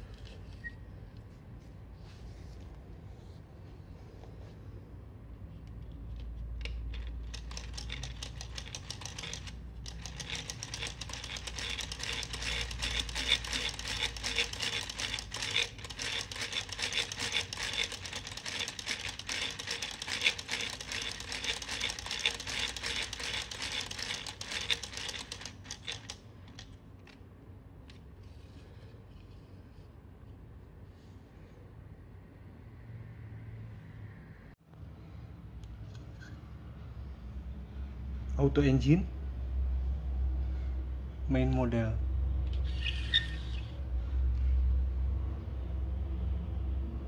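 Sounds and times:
plastic engine model clicking: 5.7 - 27.1.

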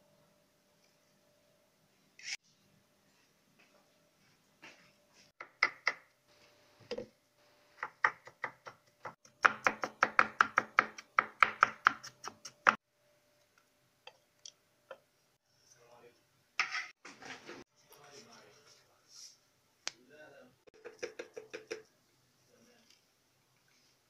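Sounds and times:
knife chopping on cutting board: 7.8 - 12.6.

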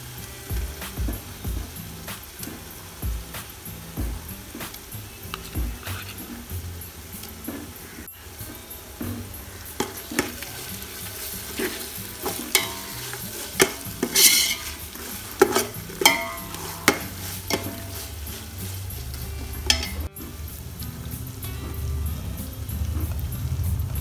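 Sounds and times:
frying sizzle: 0.0 - 24.0
spoon scraping a pot: 4.5 - 20.1.

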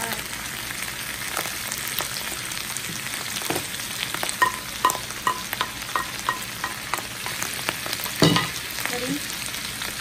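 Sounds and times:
food sizzling in a frying pan: 0.0 - 10.0
utensil knocking and scraping pan: 4.4 - 7.4.

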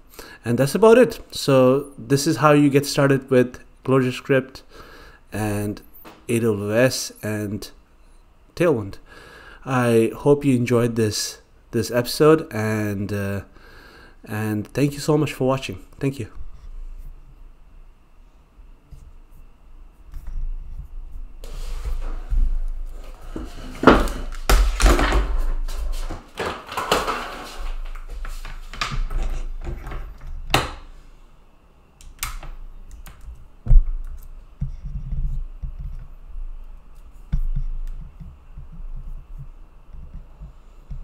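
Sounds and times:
rustling and handling noises: 18.9 - 31.0
sharp knocks and thunks: 33.6 - 34.0.

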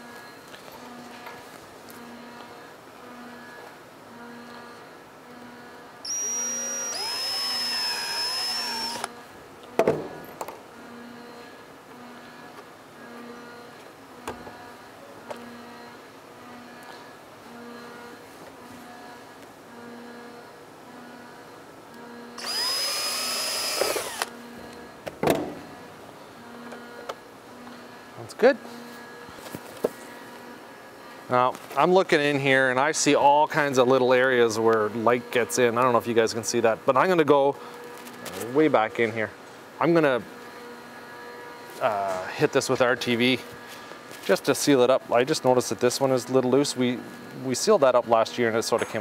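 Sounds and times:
power drill whining: 6.1 - 9.1, 22.4 - 24.4.

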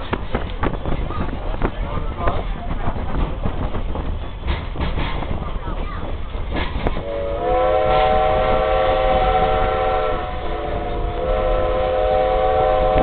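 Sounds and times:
low rumble of moving coach: 0.0 - 13.0
steam locomotive chime whistle: 7.0 - 13.0.

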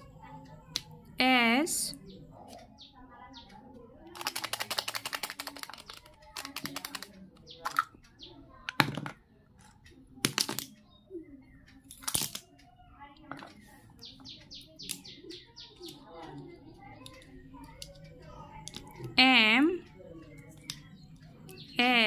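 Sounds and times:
letters clacking on a table: 2.3 - 10.9, 11.7 - 22.0
plastic letters rattling in a tub: 4.1 - 8.0.

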